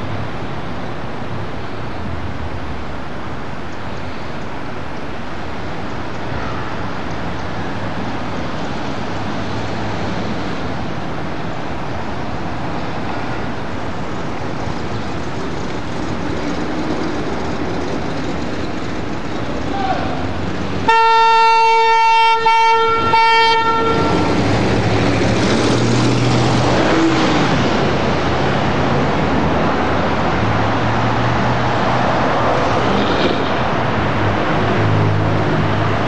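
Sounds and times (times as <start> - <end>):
car driving slowly: 0.0 - 21.2, 22.8 - 36.0.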